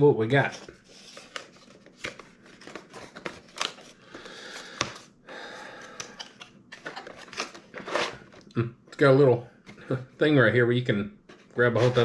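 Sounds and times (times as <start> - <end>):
cardboard scraping and rustling: 6.8 - 8.4, 11.3 - 12.0.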